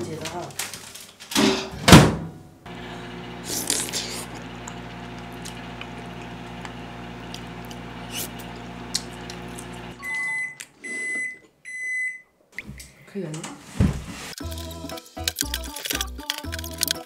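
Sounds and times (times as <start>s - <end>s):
microwave oven humming: 2.7s - 10.6s
microwave beeps: 9.9s - 12.3s.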